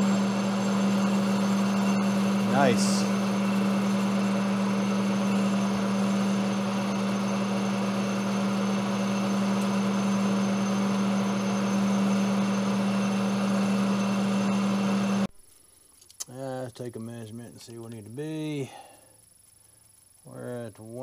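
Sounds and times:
lathe machine hum: 0:00.0 - 0:15.3
metal cutting noise: 0:00.0 - 0:15.3.

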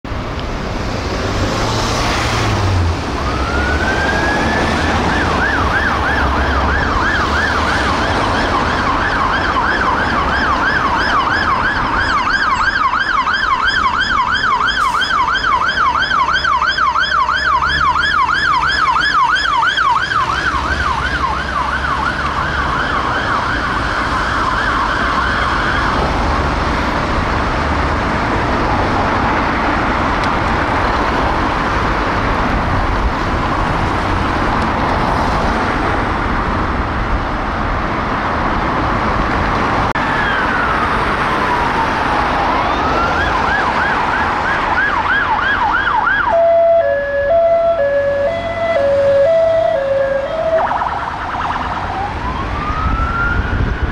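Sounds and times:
engine and traffic rumble: 0:00.0 - 0:53.9
fire engine siren yelping: 0:03.1 - 0:26.7, 0:39.9 - 0:53.9.

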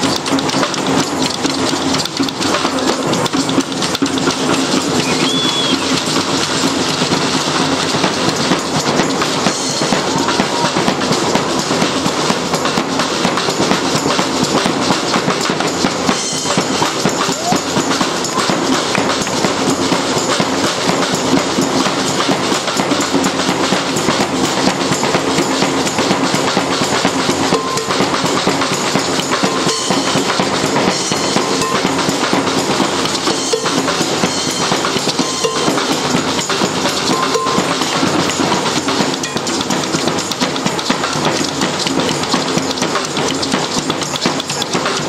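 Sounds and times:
loud fast drumming: 0:00.0 - 0:45.0
street band playing: 0:00.0 - 0:45.0.

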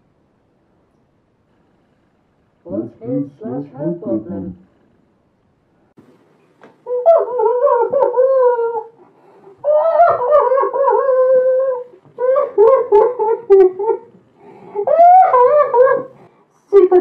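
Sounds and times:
person crying in wails: 0:06.9 - 0:09.0, 0:09.6 - 0:16.2.

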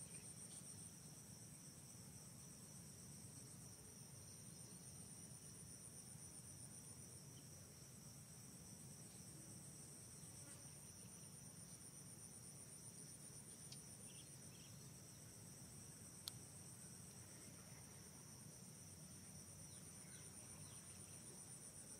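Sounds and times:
insect chorus trilling: 0:10.9 - 0:21.9.

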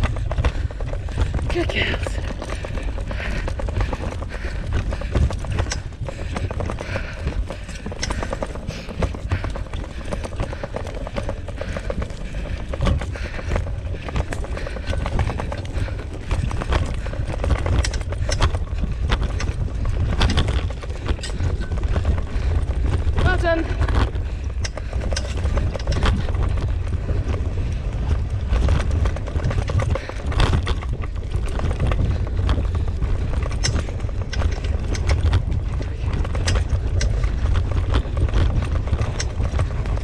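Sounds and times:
dogs' footfalls on dirt trail: 0:00.0 - 0:40.0
low rumble of movement: 0:00.0 - 0:40.0.

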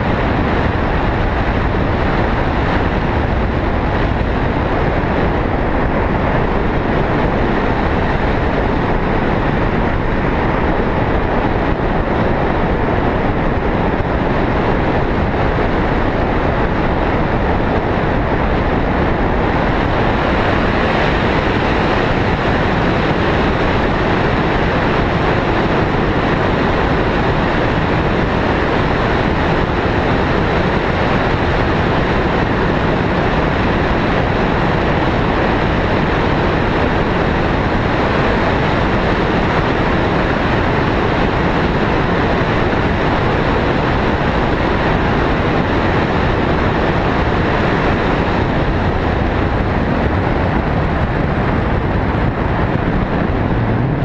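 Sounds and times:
wind rushing over microphone: 0:00.0 - 0:54.0.

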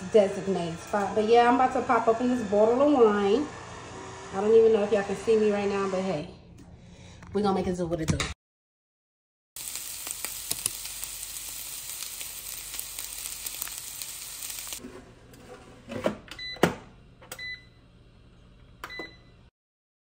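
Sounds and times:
rice sizzling in a frying pan: 0:09.6 - 0:14.8
air fryer control panel beeps: 0:16.3 - 0:16.7, 0:17.3 - 0:17.8, 0:18.8 - 0:19.4.

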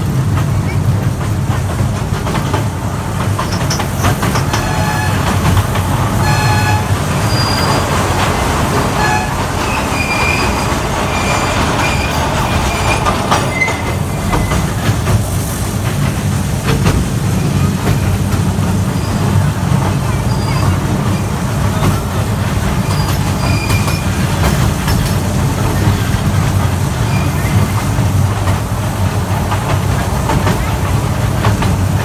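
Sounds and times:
wheels squealing: 0:03.4 - 0:14.8, 0:18.9 - 0:22.0, 0:22.8 - 0:26.1, 0:27.0 - 0:27.9
toy train horn toots: 0:04.6 - 0:05.3, 0:06.2 - 0:07.7, 0:08.9 - 0:09.5.

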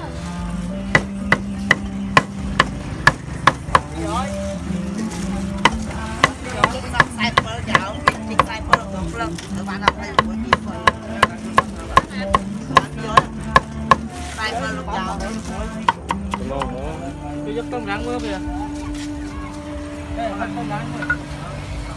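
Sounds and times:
knife chopping on wooden board: 0:00.9 - 0:03.9.

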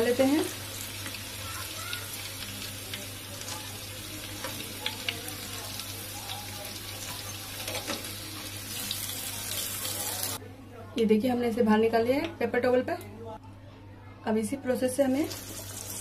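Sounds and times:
food deep-frying in oil: 0:00.0 - 0:10.4, 0:15.1 - 0:16.0.

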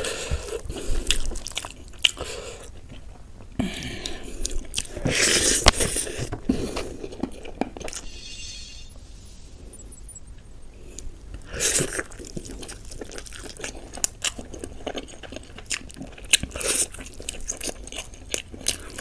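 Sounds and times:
close-miked chewing: 0:00.0 - 0:07.6, 0:11.7 - 0:19.0.

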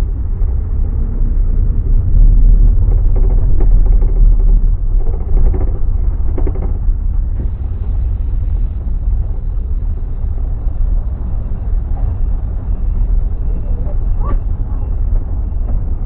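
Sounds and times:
bus engine and road rumble: 0:00.0 - 0:16.0.

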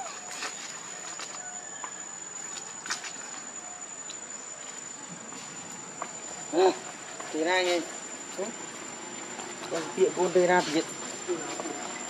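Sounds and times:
background hiss: 0:00.0 - 0:12.0
insects droning: 0:00.0 - 0:12.0.

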